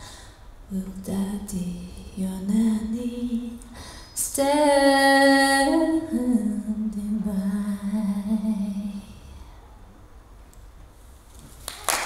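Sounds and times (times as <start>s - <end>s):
woman singing a cappella: 0.7s - 9.5s
applause: 11.6s - 12.0s.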